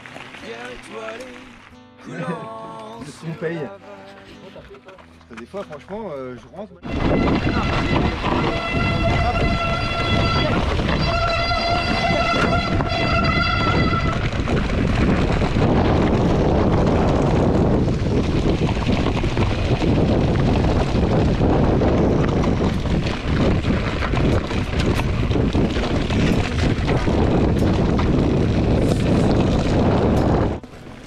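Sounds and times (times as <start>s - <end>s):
bike rattling over stones: 0.0s - 1.7s, 6.8s - 31.0s
wind noise on microphone: 6.8s - 31.0s.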